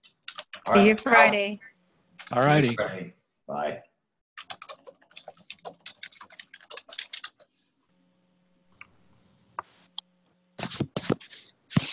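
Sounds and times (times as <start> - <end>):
keyboard keys clicking: 4.4 - 7.5.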